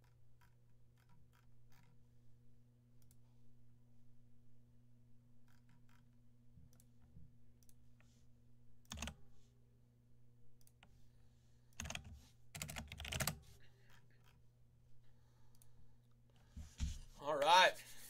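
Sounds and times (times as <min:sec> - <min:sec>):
low electrical hum: 0:00.0 - 0:18.0
computer keyboard and mouse clicks: 0:05.5 - 0:07.8, 0:08.8 - 0:09.2, 0:11.7 - 0:14.4.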